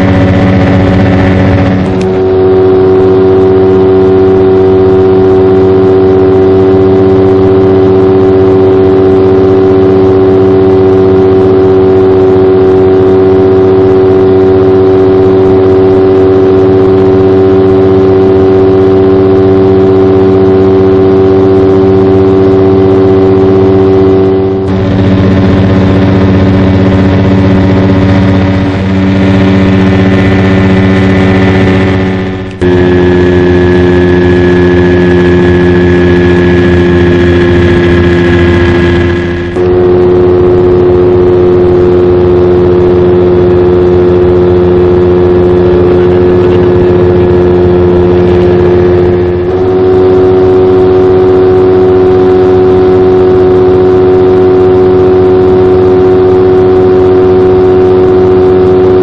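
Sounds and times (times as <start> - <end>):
light aircraft engine in flight: 0.0 - 59.0.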